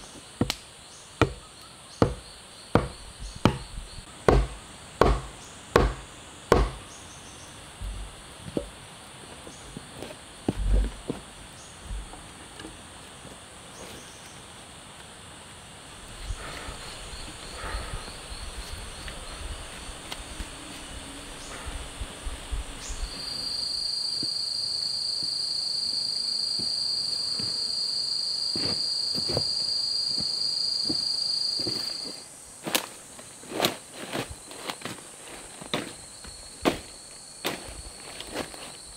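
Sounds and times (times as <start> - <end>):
insect droning: 0.0 - 38.9
sharp knocks: 1.2 - 1.4, 2.0 - 2.2, 2.8 - 3.7, 4.3 - 6.8.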